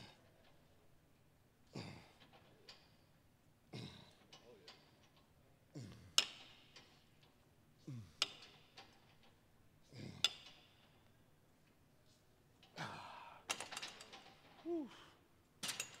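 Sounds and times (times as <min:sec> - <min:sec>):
man grunting: 0:12.8 - 0:13.5, 0:14.6 - 0:15.2
man sighing and exhaling: 0:12.8 - 0:13.5, 0:14.6 - 0:15.2.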